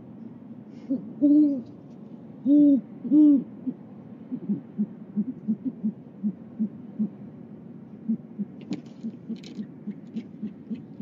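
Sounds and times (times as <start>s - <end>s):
owls hooting: 2.4s - 7.2s, 8.0s - 11.0s.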